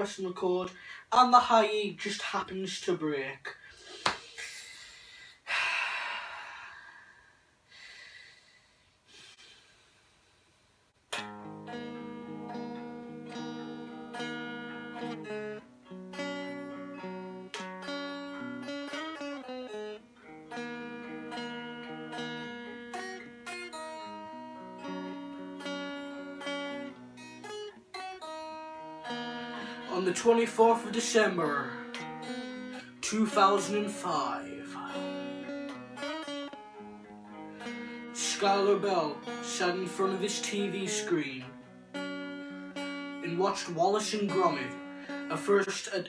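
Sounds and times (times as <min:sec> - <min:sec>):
electric guitar playing: 0:11.1 - 0:45.8.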